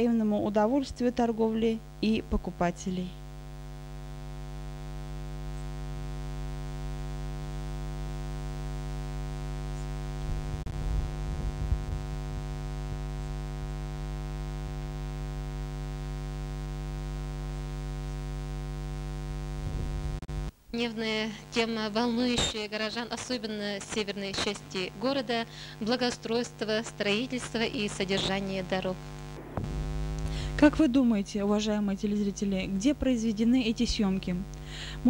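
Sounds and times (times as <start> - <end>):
electrical mains hum: 0.0 - 35.0
low thumps: 29.4 - 30.8.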